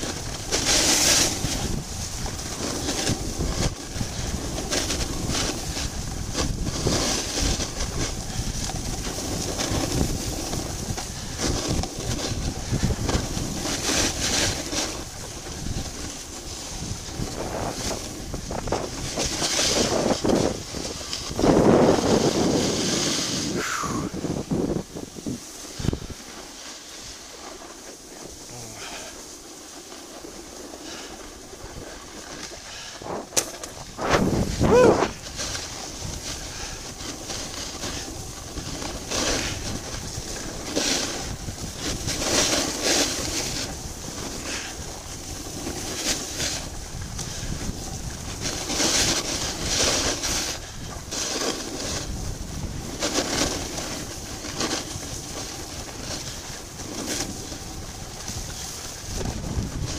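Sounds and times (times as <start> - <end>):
wind on microphone: 0.0 - 29.2, 30.2 - 59.9
skis scraping over snow: 0.0 - 59.9.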